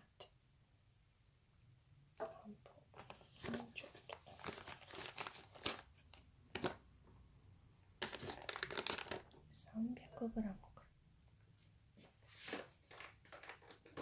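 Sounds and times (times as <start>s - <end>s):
plastic tray and film crinkling: 3.0s - 6.8s, 8.0s - 9.4s, 12.3s - 14.0s.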